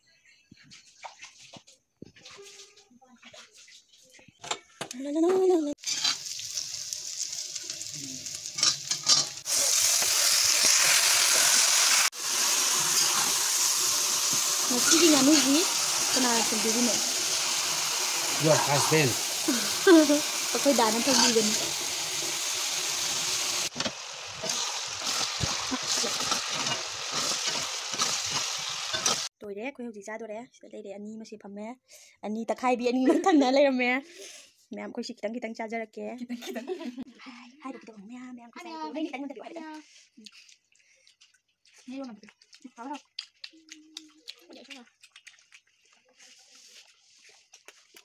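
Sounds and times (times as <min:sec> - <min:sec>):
spatula scraping a wok: 0:05.8 - 0:06.4, 0:08.5 - 0:22.8, 0:23.4 - 0:29.3
meat sizzling in a wok: 0:05.8 - 0:29.3
onions frying in oil: 0:05.8 - 0:29.3
spoon scraping and knocking pan: 0:08.6 - 0:11.4, 0:23.7 - 0:29.3.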